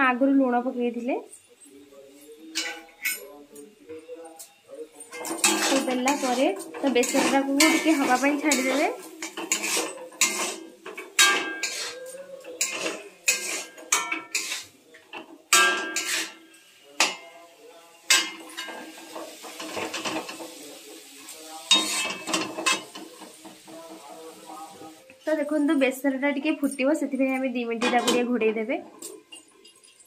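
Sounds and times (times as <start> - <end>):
metal spatula scraping metal pan: 2.4 - 4.1, 5.0 - 17.3, 18.1 - 24.3.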